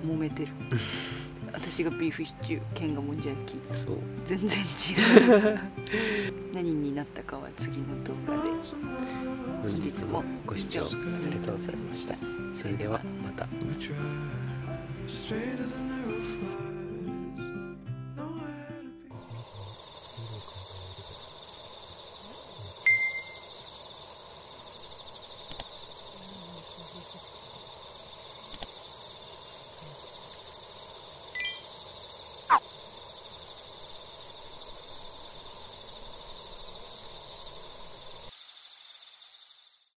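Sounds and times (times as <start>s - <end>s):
high insect chorus: 0.7s - 2.0s, 4.6s - 6.4s, 19.1s - 40.0s
bell-like ding: 22.9s - 23.4s, 31.4s - 31.7s
click and ding sound effect: 22.9s - 23.4s, 31.4s - 31.7s.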